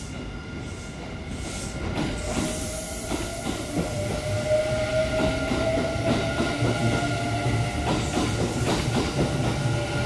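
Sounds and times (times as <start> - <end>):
train wheels rumbling on rail: 0.0 - 10.0.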